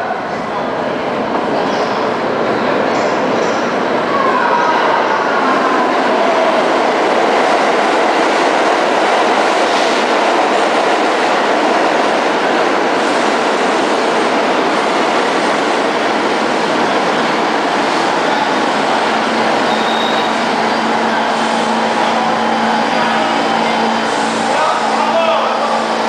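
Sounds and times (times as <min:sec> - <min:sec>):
train wheels on rails: 0:05.3 - 0:26.0.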